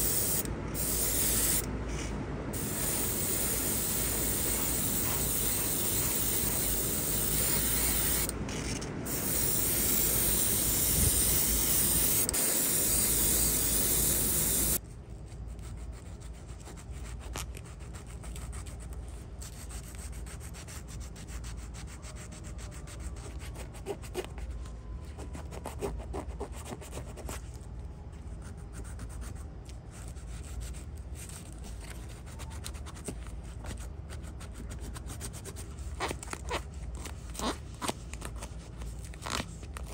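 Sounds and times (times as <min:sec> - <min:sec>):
spray paint hissing: 0:00.0 - 0:14.8
sandpaper rubbing on metal: 0:02.6 - 0:08.3.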